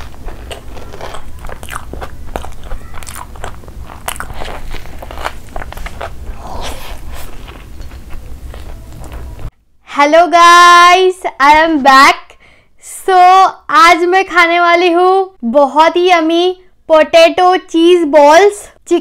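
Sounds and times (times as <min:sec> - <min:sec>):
crunching and chewing food: 0:00.0 - 0:09.5
low steady hum: 0:00.0 - 0:11.4.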